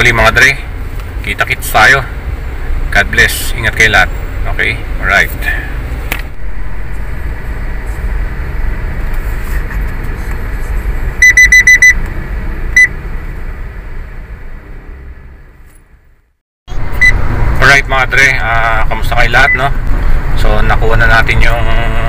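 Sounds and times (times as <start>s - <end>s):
road and engine rumble: 0.0s - 22.0s
short high electronic beeps: 11.2s - 12.0s.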